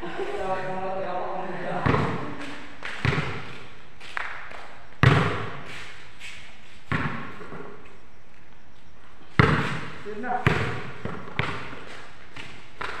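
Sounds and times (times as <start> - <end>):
basketball thudding on concrete: 1.8 - 2.2, 2.8 - 3.7, 4.5 - 5.7, 6.9 - 7.8, 9.4 - 13.0.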